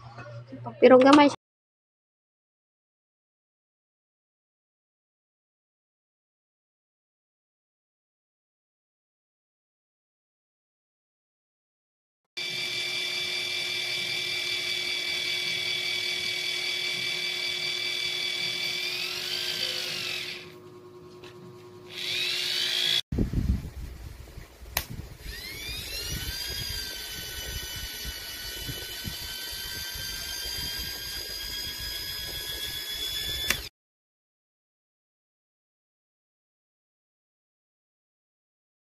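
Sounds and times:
small electric motor whining: 0:12.4 - 0:23.0, 0:25.1 - 0:33.7
click: 0:33.4 - 0:33.7.

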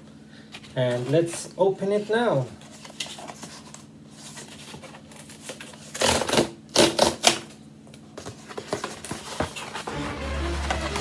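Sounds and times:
cardboard tearing and crackling: 0:05.0 - 0:07.5.

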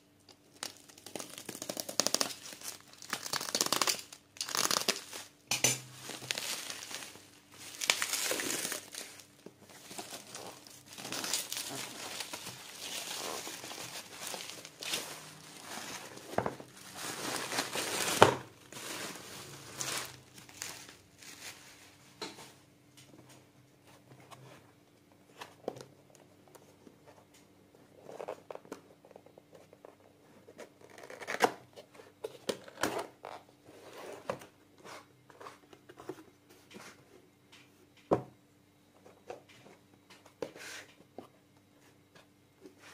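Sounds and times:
bubble wrap crinkling: 0:00.4 - 0:22.2.

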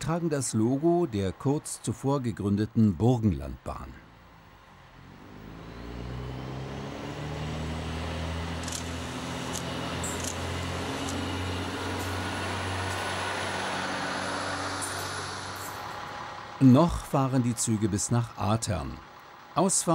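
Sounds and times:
diesel railcar engine hum: 0:00.0 - 0:19.9
sharp clicks of train passing: 0:08.6 - 0:13.2.

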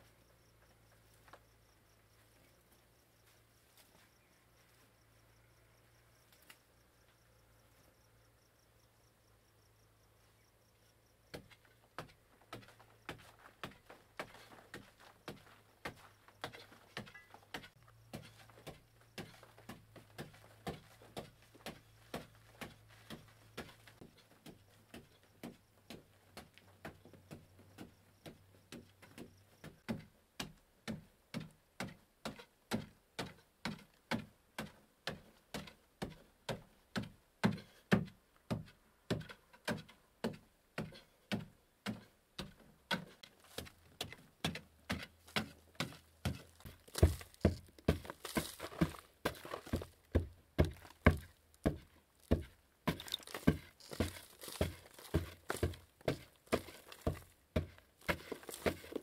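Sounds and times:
mattock striking packed earth: 0:43.0 - 0:59.0.

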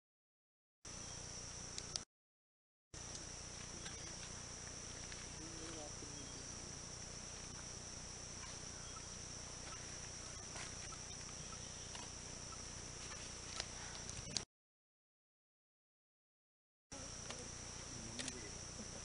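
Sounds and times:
forest insects droning: 0:00.9 - 0:02.1, 0:03.0 - 0:14.4, 0:16.9 - 0:19.0
sharp clicks: 0:01.8 - 0:02.1.

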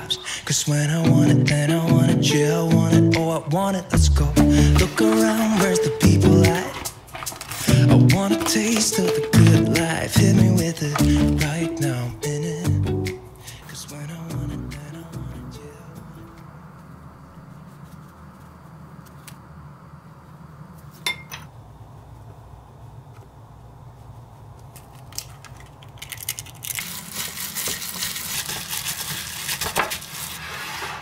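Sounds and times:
clink against glass bowl: 0:21.1 - 0:21.5.

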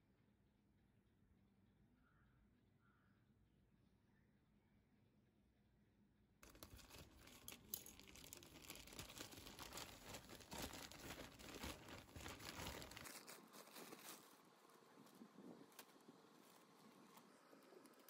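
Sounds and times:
plastic bag crinkling: 0:06.4 - 0:18.0.

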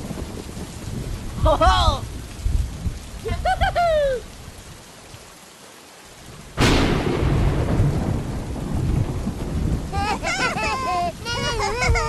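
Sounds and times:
heavy rain hissing: 0:00.0 - 0:12.0
sharp thunderclap: 0:06.6 - 0:12.0.

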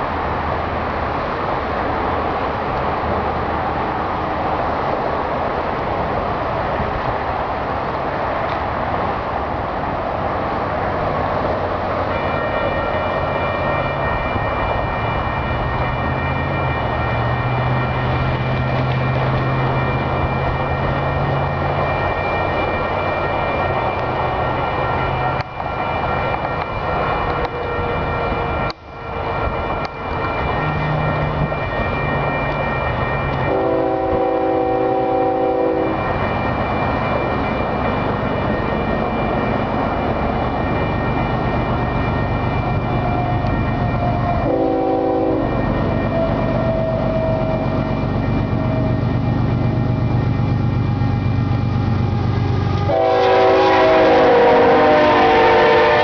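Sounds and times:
train running noise: 0:00.0 - 0:56.0
train air horn blasts: 0:33.5 - 0:36.0, 0:44.4 - 0:45.6, 0:52.8 - 0:56.0.

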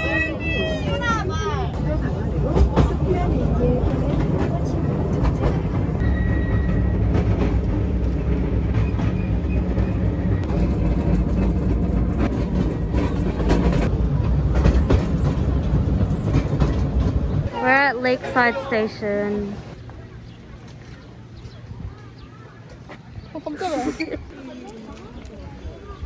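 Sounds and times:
wheels clicking over rails: 0:00.0 - 0:18.4
train carriage rumble and rattle: 0:00.0 - 0:26.0.

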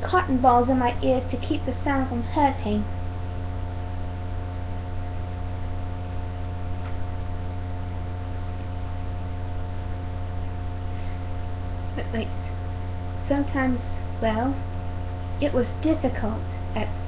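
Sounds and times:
constant hiss: 0:00.0 - 0:17.0
low electrical hum: 0:00.0 - 0:17.0.

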